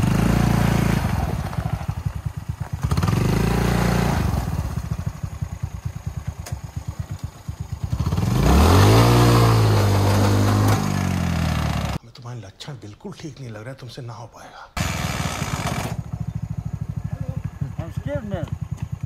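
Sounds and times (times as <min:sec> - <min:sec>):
small engine revving and idling: 0:00.0 - 0:12.0, 0:14.8 - 0:19.0.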